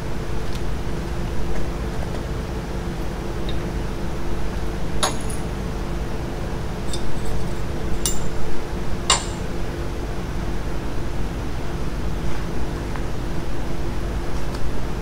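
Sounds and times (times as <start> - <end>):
steady machine hum: 0.0 - 15.0
ringing metallic clinks: 6.9 - 8.4.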